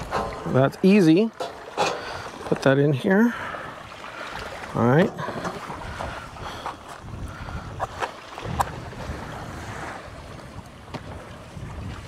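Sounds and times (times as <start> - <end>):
distant surf: 0.0 - 12.0
wind buffeting microphone: 3.4 - 12.0.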